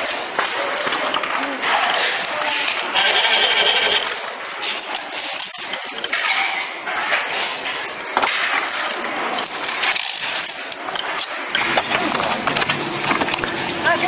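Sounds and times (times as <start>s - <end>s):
plastic parts clicking and rattling: 0.0s - 14.0s.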